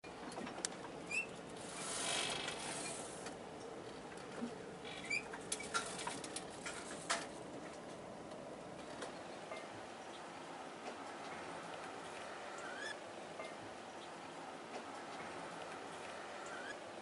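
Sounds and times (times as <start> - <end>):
faint creaks clicks and squeaks: 0.2 - 10.2
hiss: 1.6 - 3.2.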